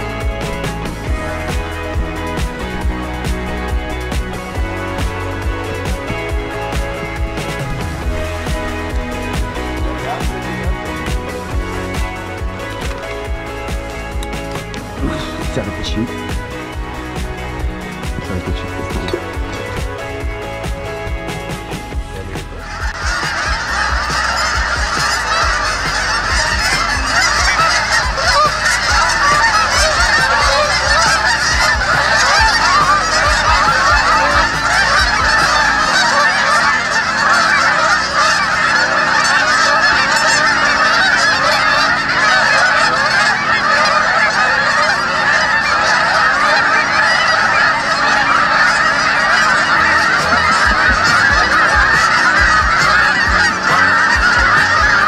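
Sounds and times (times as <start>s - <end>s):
flock of geese honking: 0.0s - 55.0s.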